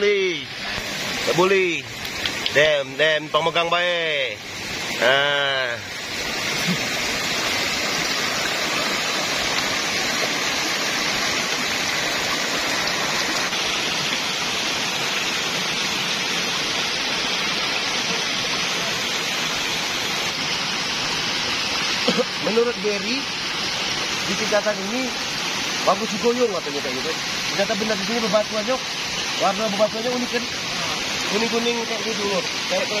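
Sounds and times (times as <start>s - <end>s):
white water rushing over boulders: 0.0s - 33.0s.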